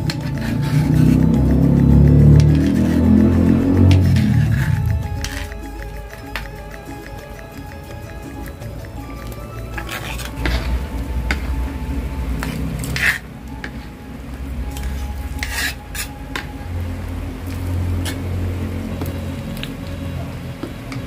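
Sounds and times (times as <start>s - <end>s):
metal ladle scraping in a wok: 12.2s - 14.0s, 14.7s - 16.5s.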